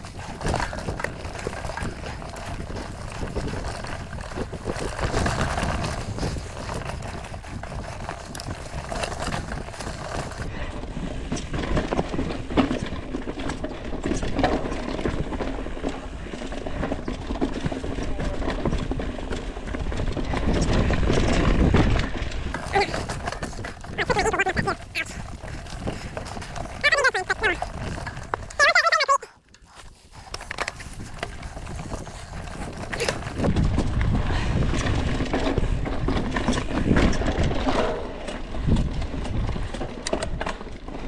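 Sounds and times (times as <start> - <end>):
bike rattling over bumps: 0.0 - 41.0
tyres clattering over rocks: 0.0 - 41.0.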